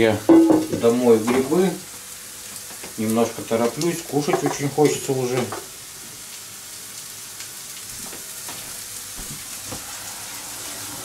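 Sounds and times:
onion sizzling in oil: 0.0 - 11.0
faint knocks of kitchenware: 0.3 - 1.4.

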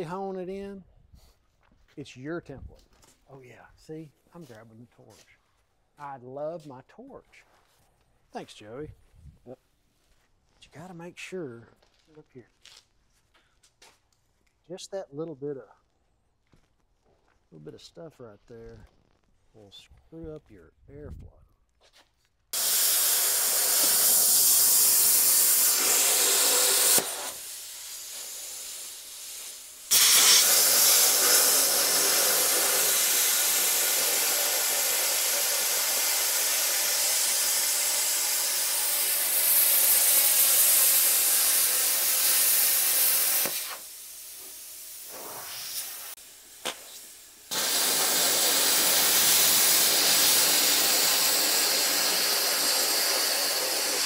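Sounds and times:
cutting torch hissing: 22.6 - 54.0.

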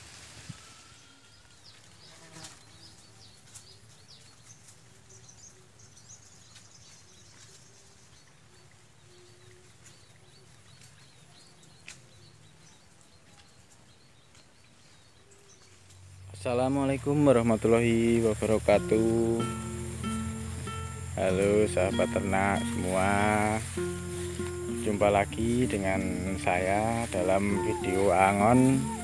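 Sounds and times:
distant sheep bleating: 16.7 - 29.0
small high chirps: 18.5 - 29.0.

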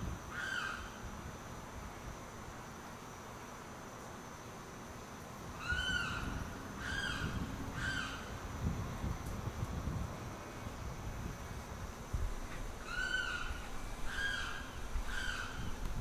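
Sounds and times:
bird wailing calls: 0.3 - 1.0, 5.6 - 8.3, 12.8 - 15.8.

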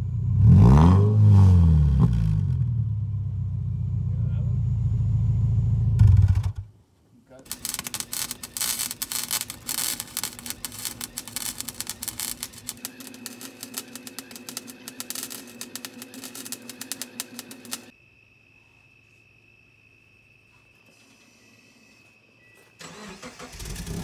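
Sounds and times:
welder arc crackling: 7.4 - 17.9.

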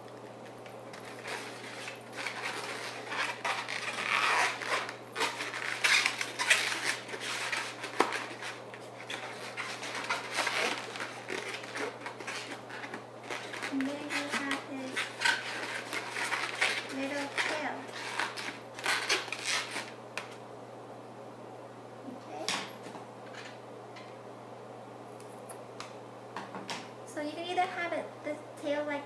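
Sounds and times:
balloons rubbing while twisted: 1.0 - 19.9.

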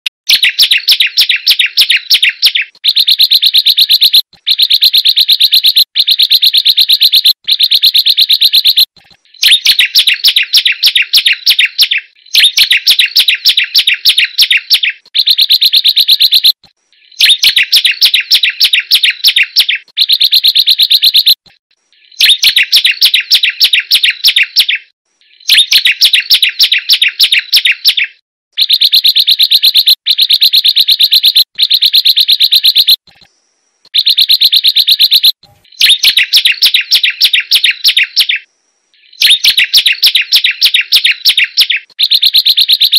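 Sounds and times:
bird trilling: 0.3 - 21.3, 33.9 - 42.9.

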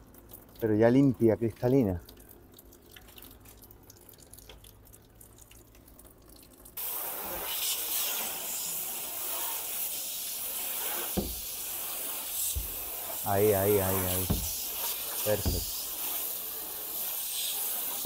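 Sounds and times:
faint dripping water: 0.0 - 6.8
garden hose spraying water: 0.0 - 18.0.

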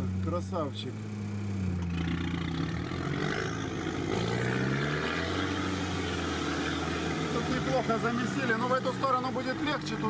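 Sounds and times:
off-road vehicle engine under load: 0.0 - 10.0.

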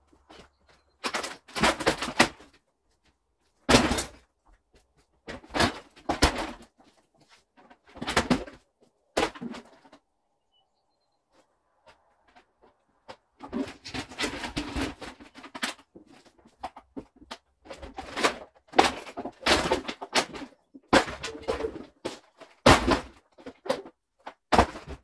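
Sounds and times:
debris scraping and rattling: 11.8 - 25.0.

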